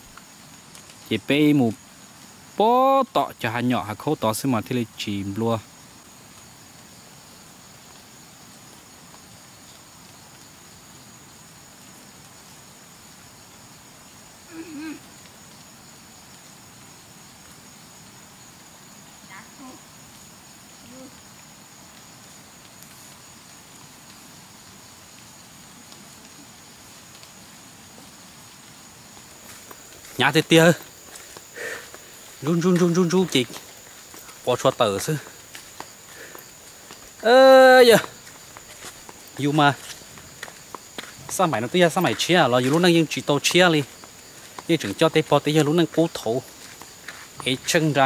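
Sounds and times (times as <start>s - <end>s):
faint background noise: 0.0s - 48.0s
insects trilling: 0.0s - 48.0s
outdoor background hiss: 0.0s - 48.0s
faint ticks: 0.1s - 1.1s, 21.9s - 24.2s, 25.1s - 30.2s.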